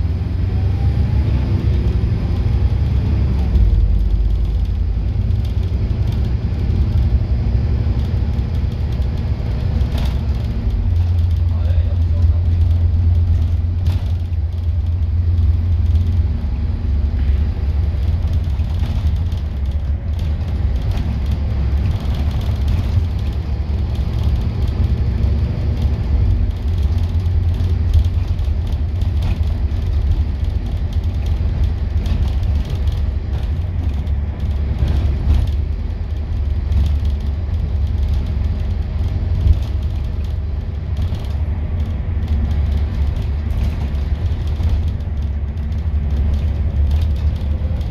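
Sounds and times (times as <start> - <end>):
diesel bus engine rumble: 0.0 - 47.9
knocks and rattles: 7.9 - 16.4, 17.5 - 47.9.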